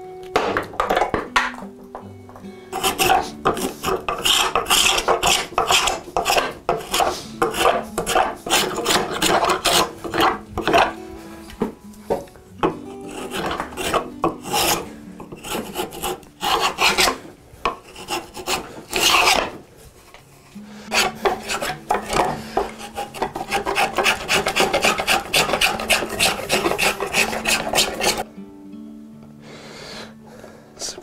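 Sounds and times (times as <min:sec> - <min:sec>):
spokeshave scraping wood: 0:02.7 - 0:11.0, 0:13.0 - 0:28.2.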